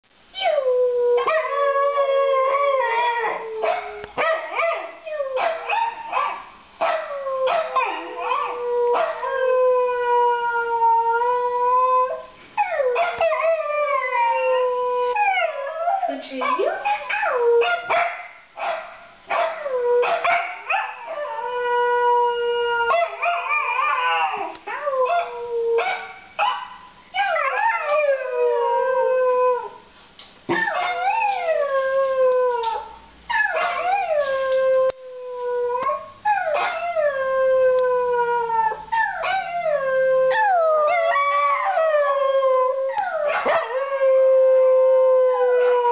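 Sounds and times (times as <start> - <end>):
dog howling: 30.5 - 45.9.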